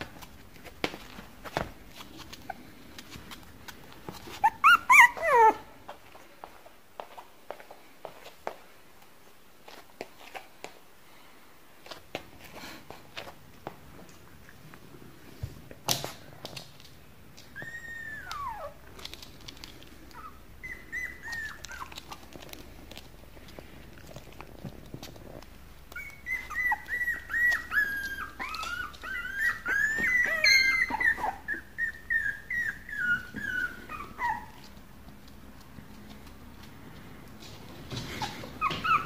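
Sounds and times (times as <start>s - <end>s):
puppy whimpering: 4.1s - 5.7s, 17.4s - 19.2s, 20.1s - 22.5s, 25.1s - 34.8s, 38.0s - 39.0s.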